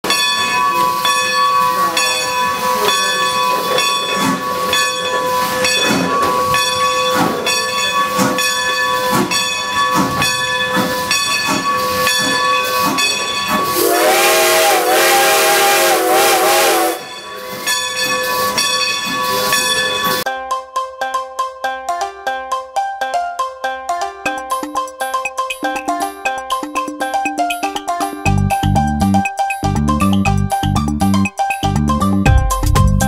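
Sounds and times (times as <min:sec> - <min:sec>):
locomotive bell ringing: 0:00.0 - 0:20.3
steam whistle blast: 0:13.6 - 0:17.1.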